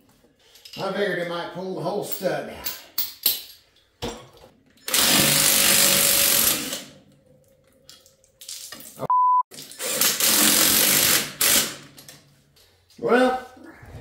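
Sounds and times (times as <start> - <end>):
short beep: 9.1 - 9.4.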